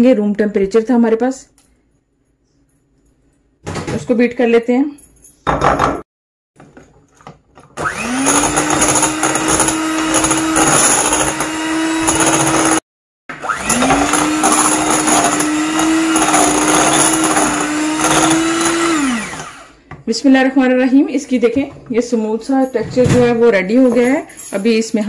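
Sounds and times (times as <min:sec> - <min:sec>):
electric hand mixer whining: 0:07.7 - 0:19.9.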